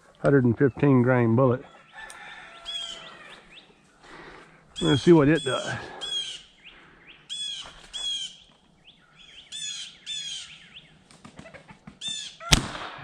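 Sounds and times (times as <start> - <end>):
songbirds chirping: 0.0 - 12.6
rifle shot: 12.5 - 13.0.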